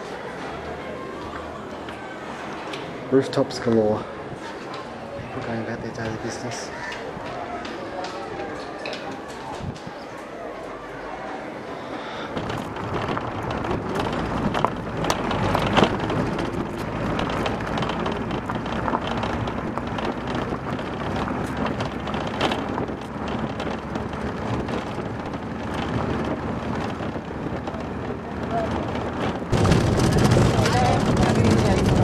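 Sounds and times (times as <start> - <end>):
road and wind noise: 0.0 - 32.0
minibus engine hum: 3.8 - 32.0
sharp knocks and rattles: 12.4 - 32.0.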